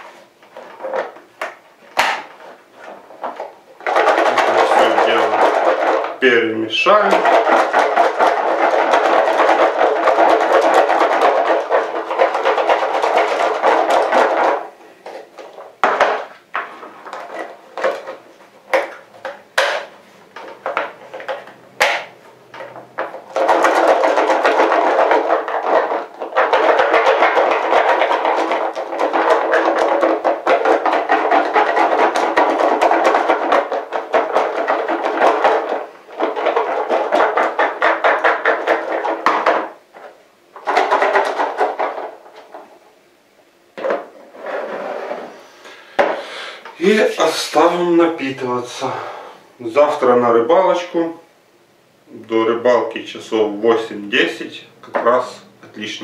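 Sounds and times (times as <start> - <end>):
plastic containers and lids clicking: 0.4 - 6.2, 6.9 - 42.7
seeds rattling in plastic container: 3.8 - 6.2.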